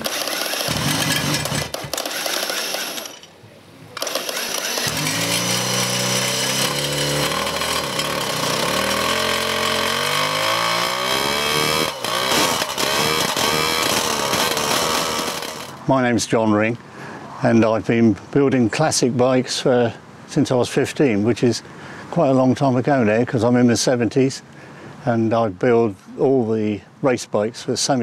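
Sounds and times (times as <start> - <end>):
two-stroke engine revving: 0.0 - 3.2, 4.0 - 15.8.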